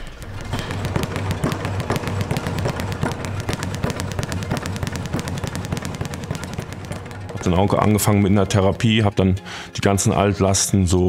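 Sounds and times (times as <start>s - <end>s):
low hum: 0.0s - 8.8s
rapid sharp cracking impacts: 0.0s - 8.9s.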